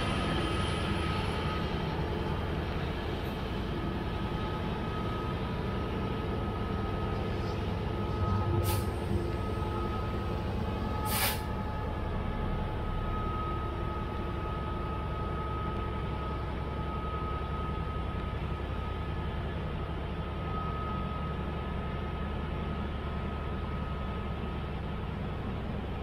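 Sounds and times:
faint high whine: 0.0s - 24.5s
diesel locomotive drone: 0.0s - 26.0s
air hiss: 11.1s - 11.5s.

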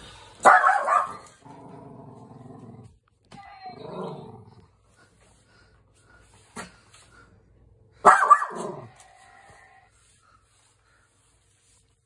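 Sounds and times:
dog barking: 0.4s - 1.4s, 8.0s - 8.9s
dog growling low: 1.4s - 3.0s, 3.8s - 4.7s.

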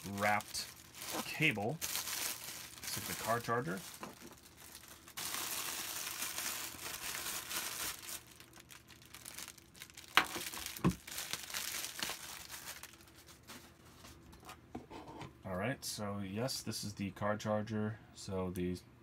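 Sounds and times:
plastic bag crinkling: 0.0s - 13.7s.

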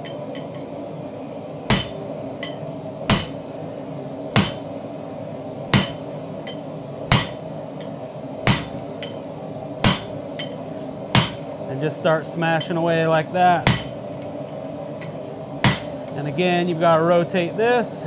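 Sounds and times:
hammer striking metal on anvil: 0.0s - 0.8s, 1.7s - 3.5s, 4.4s - 4.8s, 5.7s - 11.6s, 12.6s - 12.8s, 13.6s - 14.2s, 15.0s - 16.1s
steady low hum: 0.0s - 18.0s.

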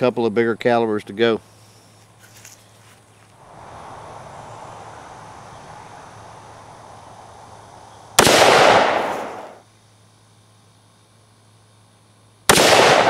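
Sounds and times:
revolver shots with echo: 8.2s - 9.6s, 12.5s - 13.0s.

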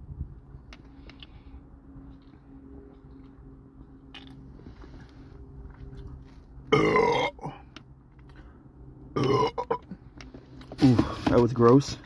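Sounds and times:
man belching: 6.7s - 7.6s, 9.2s - 9.8s.

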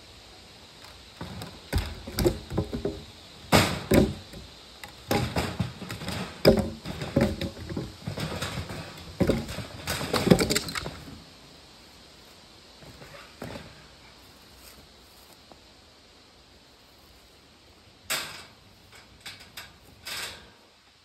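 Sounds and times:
wooden clattering: 0.9s - 11.2s
wooden knocks and thuds: 1.2s - 11.2s.

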